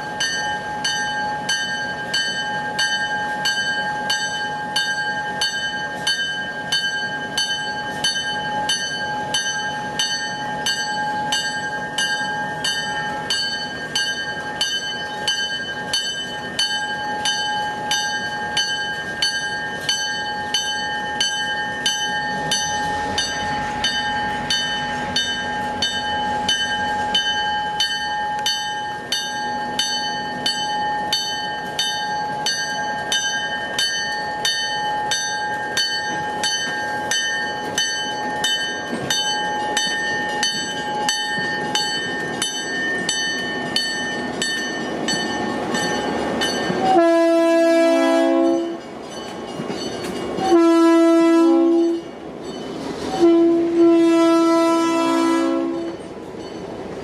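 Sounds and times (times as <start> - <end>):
locomotive bell ringing: 0.0 - 57.0
train horn blast: 46.8 - 48.8, 50.4 - 52.1, 53.1 - 56.0.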